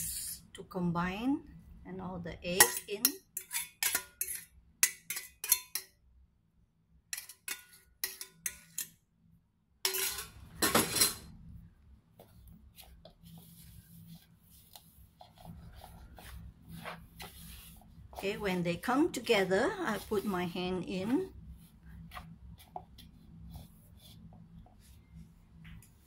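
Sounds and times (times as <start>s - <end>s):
chopsticks scraping steel bowl: 2.5s - 5.9s, 7.1s - 9.0s, 9.9s - 11.2s, 13.8s - 21.4s
chopsticks stirring batter: 2.5s - 6.0s, 7.1s - 9.0s, 12.2s - 25.2s.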